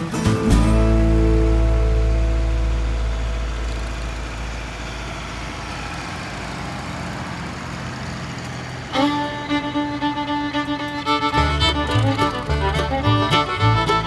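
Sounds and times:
fiddle playing a tune: 0.0s - 4.9s, 8.8s - 14.0s.

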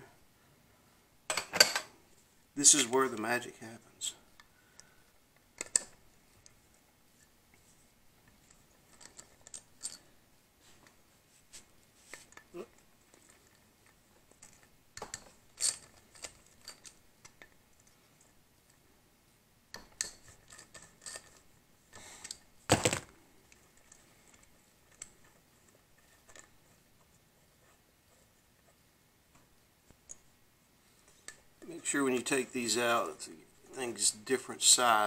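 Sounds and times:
metal clinks of bolts and tools: 1.3s - 2.0s, 14.4s - 17.4s.

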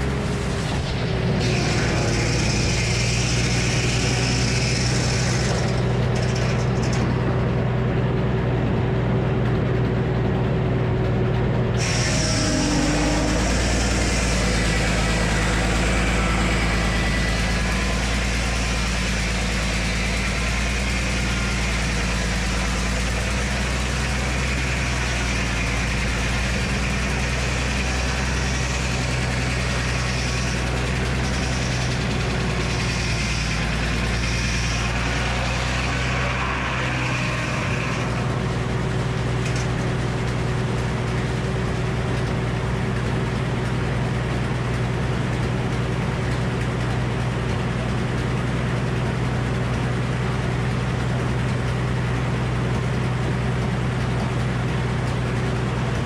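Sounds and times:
circular saw cutting log: 0.0s - 7.8s, 11.7s - 56.0s
engine humming: 0.0s - 56.0s.

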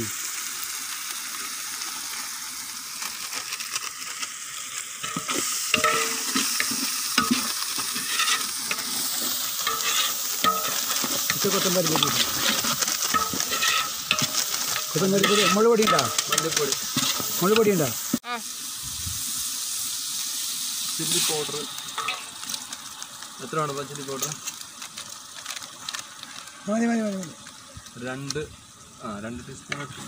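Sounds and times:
masala sizzling in oil: 0.0s - 30.0s
ladle scraping metal pot: 5.0s - 17.8s, 22.0s - 22.3s.

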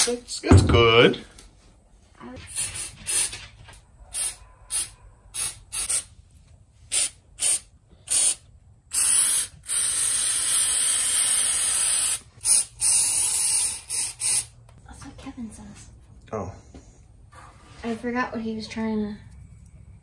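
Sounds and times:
aerosol spray hissing: 4.2s - 6.1s, 6.9s - 14.6s.

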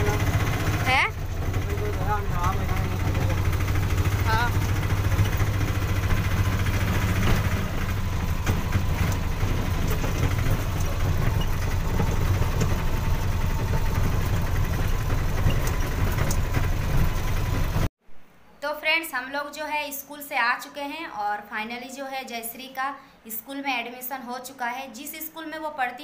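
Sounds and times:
auto-rickshaw engine running: 0.0s - 17.9s.

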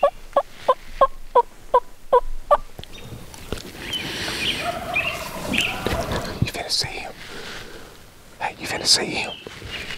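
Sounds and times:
turkey yelps: 4.4s - 6.4s.

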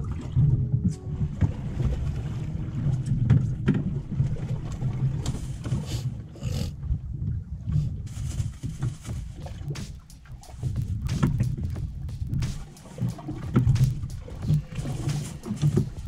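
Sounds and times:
sea noise: 0.0s - 16.0s
water splashes: 0.0s - 16.0s
wind buffeting microphone: 6.2s - 16.0s.

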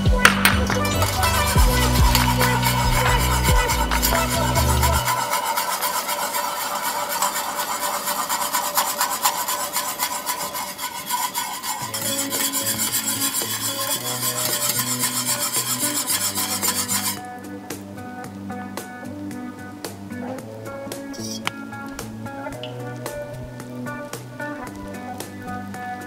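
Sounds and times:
whisk scraping a metal pan: 0.6s - 17.3s.

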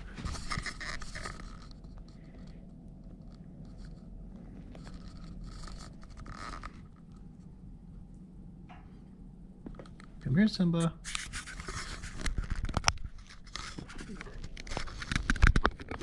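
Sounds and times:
scratchy rustling: 0.0s - 2.5s, 3.2s - 7.4s, 11.0s - 16.0s
low steady hum: 0.0s - 16.0s.

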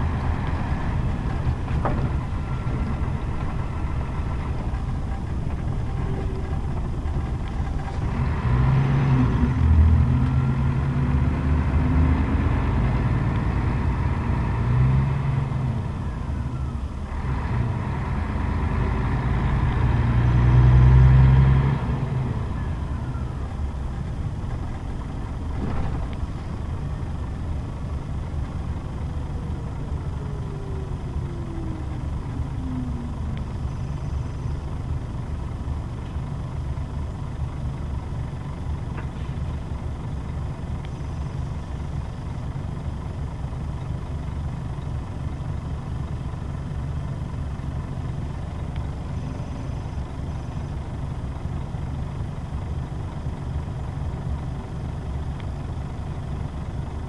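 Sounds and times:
bus diesel engine rumbling: 0.0s - 57.0s
faint falling whine: 28.8s - 34.8s.

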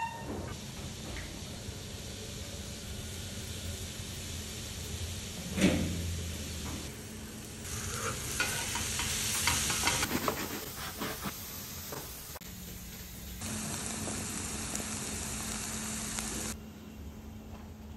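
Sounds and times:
mushrooms sizzling in a skillet: 7.0s - 16.6s.

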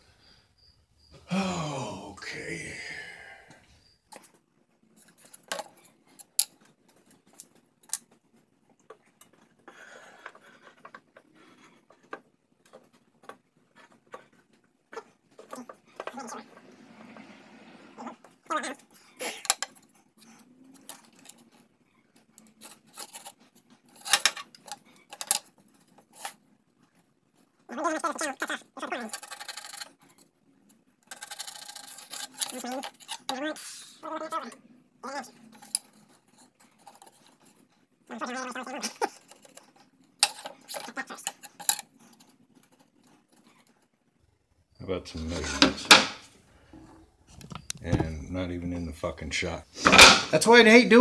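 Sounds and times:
man's voice: 1.2s - 3.6s
wood and metal clacking on surface: 45.3s - 48.1s, 49.8s - 50.4s.

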